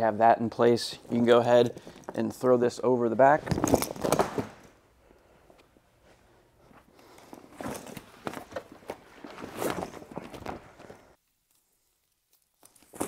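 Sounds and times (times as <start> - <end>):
shuffling steps: 5.4 - 11.2
fabric rustling: 6.0 - 13.0.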